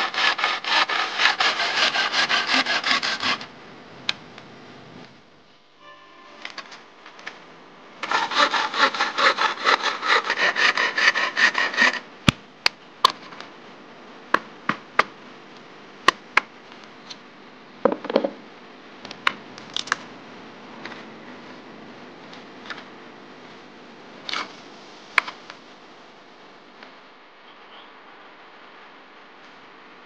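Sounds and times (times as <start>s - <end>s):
hand saw cutting bamboo: 0.0s - 3.5s, 8.0s - 12.1s
brief scrape: 5.8s - 6.9s.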